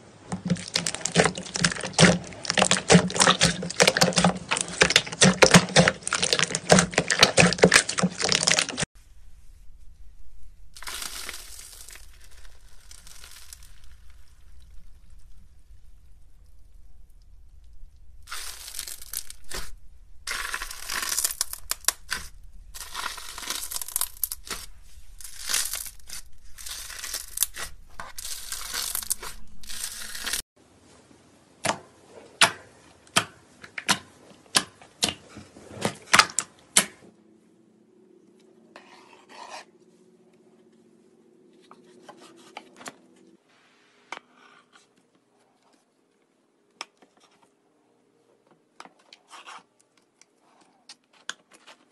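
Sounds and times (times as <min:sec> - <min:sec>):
foamy slime crackling and fizzing: 0:00.3 - 0:08.9, 0:10.7 - 0:15.4, 0:18.2 - 0:30.4.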